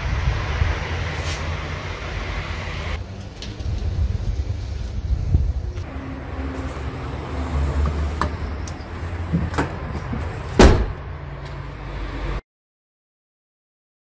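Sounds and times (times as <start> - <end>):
tailgate shutting thump: 10.6 - 11.0.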